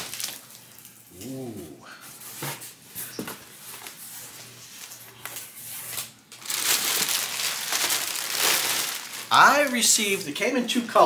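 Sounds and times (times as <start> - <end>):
plastic packing crinkling: 0.0 - 1.0, 3.6 - 11.0.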